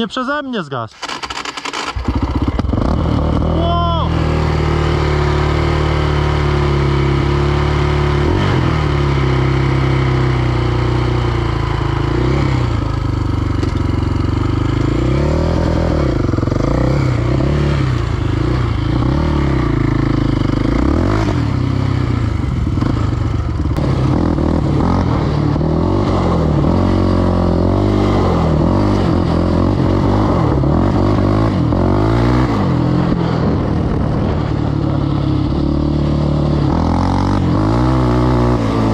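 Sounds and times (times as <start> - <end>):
quad engine revving: 0.9 - 38.9.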